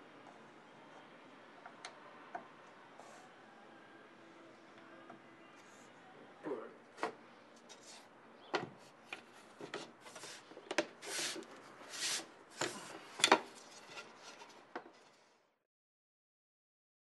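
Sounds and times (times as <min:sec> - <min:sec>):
hands rubbing over board: 0:09.8 - 0:12.9.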